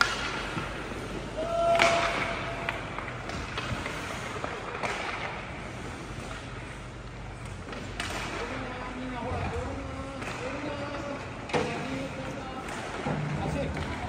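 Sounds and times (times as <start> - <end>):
skates on ice: 0.0 - 14.0
sticks and puck clacking on boards: 0.0 - 14.0
players' voices: 7.9 - 14.0.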